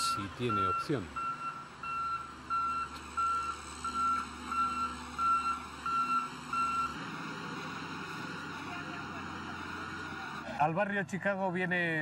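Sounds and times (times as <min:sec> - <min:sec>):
reversing alarm beeping: 0:00.0 - 0:07.0.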